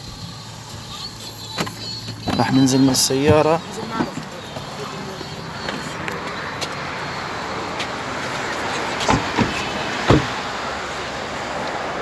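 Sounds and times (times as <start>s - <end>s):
road traffic on wet street: 0.0s - 12.0s
short dull thumps: 9.0s - 10.4s.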